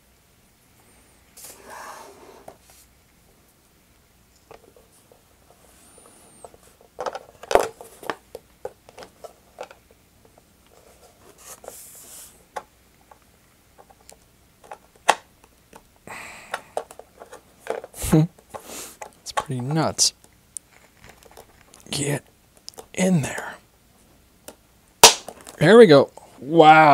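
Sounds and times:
small clicks taps and scrapes: 0:04.3 - 0:11.8, 0:12.5 - 0:15.9, 0:16.8 - 0:22.0, 0:22.6 - 0:23.6.

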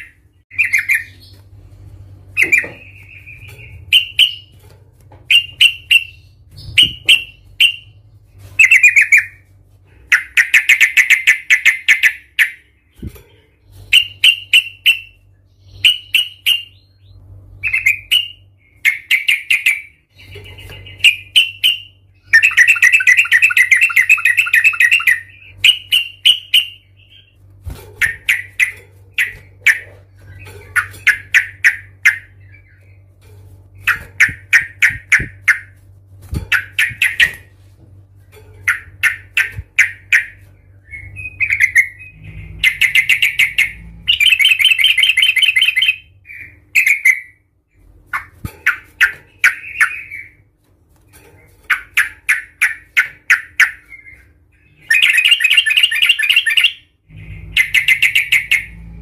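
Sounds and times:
bird chattering rattle: 0:27.4 - 0:37.5.

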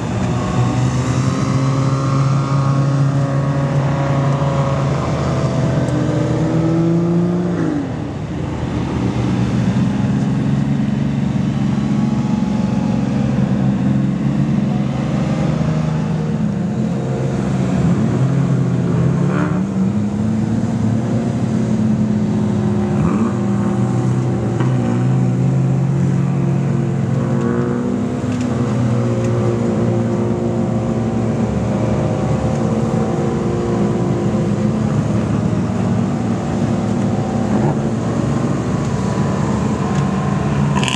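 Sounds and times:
car engine revving: 0:00.0 - 0:40.9.

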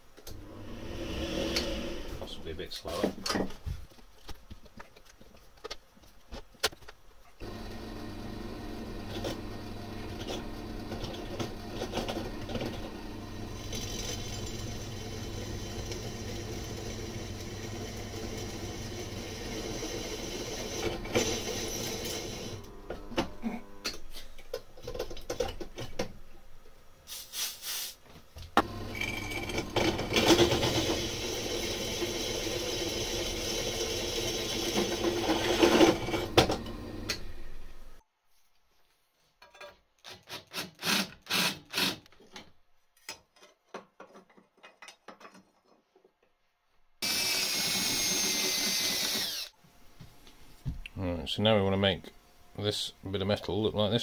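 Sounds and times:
drill press drilling steel: 0:07.4 - 0:23.9, 0:28.6 - 0:37.9, 0:47.0 - 0:49.6.

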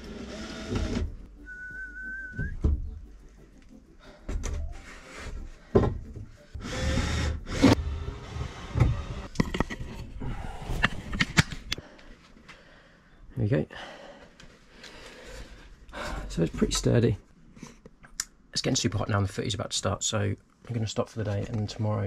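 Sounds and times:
person whistling: 0:01.4 - 0:02.7.

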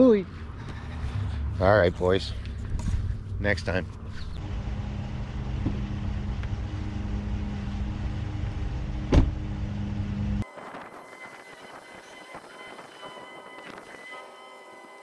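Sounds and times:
door slamming shut: 0:09.1 - 0:09.4.

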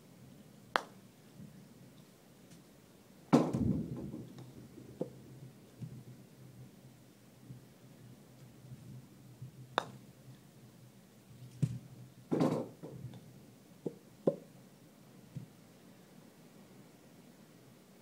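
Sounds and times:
putter striking golf balls: 0:13.8 - 0:14.4.

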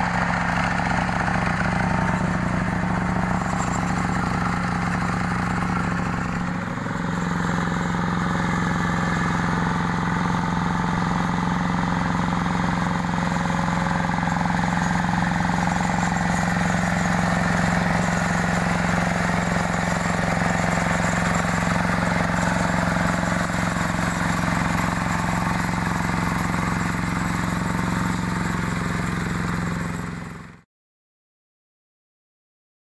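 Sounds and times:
diesel engine running: 0:00.0 - 0:30.5
rotary tiller churning mud: 0:00.0 - 0:30.6.

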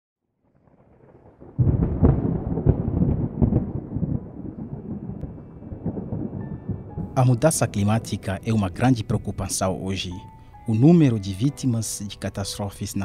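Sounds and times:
thunder rumbling and cracking: 0:00.5 - 0:09.8.

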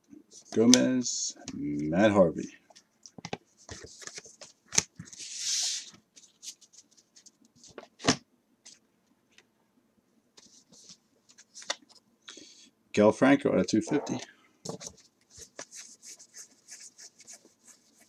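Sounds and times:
paper cards sliding rustle: 0:03.6 - 0:07.8.

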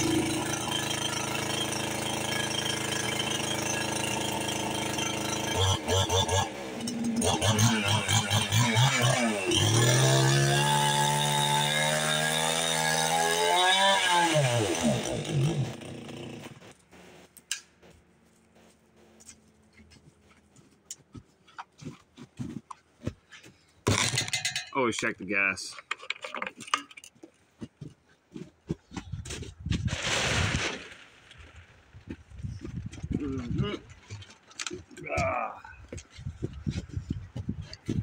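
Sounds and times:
chainsaw cutting wood: 0:00.0 - 0:17.3.

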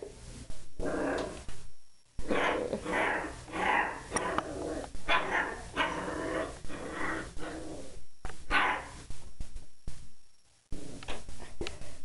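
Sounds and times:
puppy barking: 0:05.1 - 0:06.0, 0:08.5 - 0:08.9.

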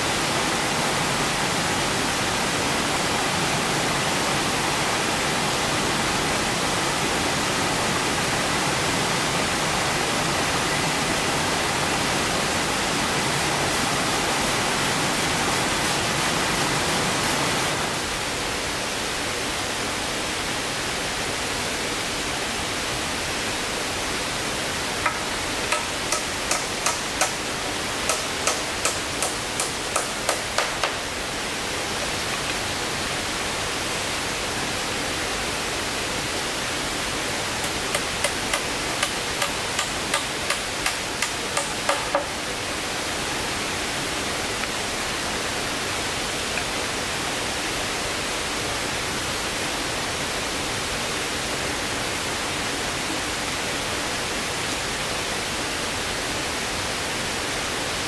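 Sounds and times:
steady hiss: 0:00.0 - 0:58.0
hand tool striking: 0:25.0 - 0:27.4, 0:28.1 - 0:31.0, 0:37.6 - 0:42.3.

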